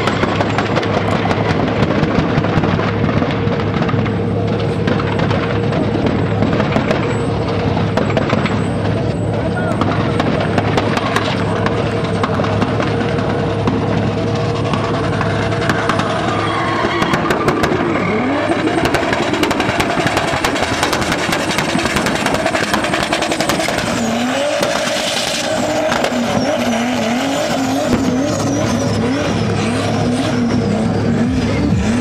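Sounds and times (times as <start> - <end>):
engine revving hard: 14.1 - 32.0
tyres squealing: 15.8 - 19.3.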